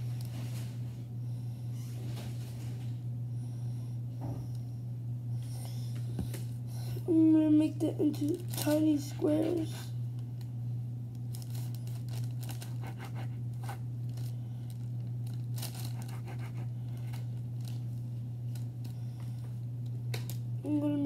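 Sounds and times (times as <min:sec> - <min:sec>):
steady low hum: 0:00.0 - 0:21.0
knife cutting dough on paper: 0:12.6 - 0:13.8, 0:15.8 - 0:17.2.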